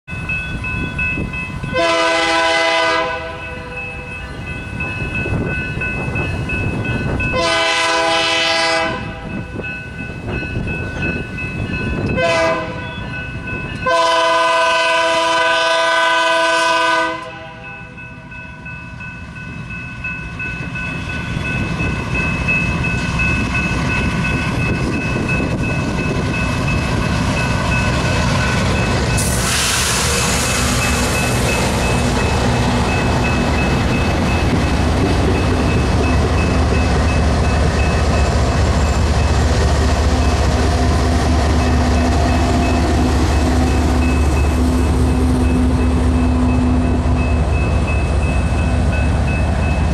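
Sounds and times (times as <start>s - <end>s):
train on the rails: 0.0s - 49.9s
diesel locomotive engines: 0.1s - 49.9s
locomotive air horn blasts: 1.7s - 3.8s, 7.3s - 9.3s, 12.1s - 12.9s, 13.8s - 17.7s.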